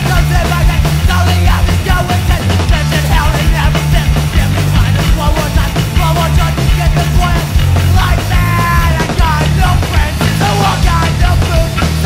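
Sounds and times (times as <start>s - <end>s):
pounding drums: 0.0s - 12.0s
punk rock band playing: 0.0s - 12.0s.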